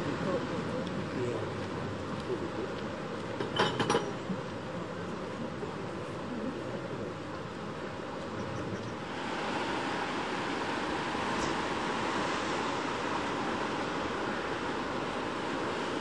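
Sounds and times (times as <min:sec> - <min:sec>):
surf washing against rocks: 0:00.0 - 0:03.5, 0:09.0 - 0:16.0.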